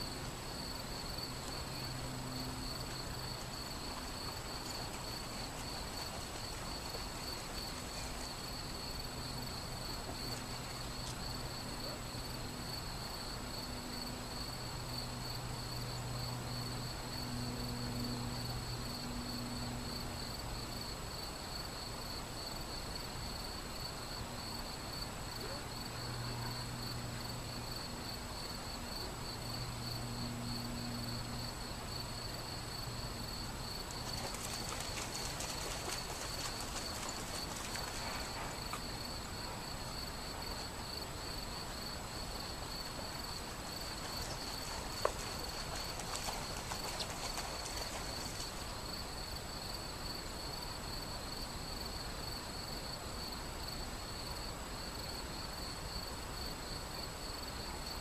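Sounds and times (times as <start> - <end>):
crickets chirring: 0.0 - 58.0
river flowing over stones: 42.1 - 48.9.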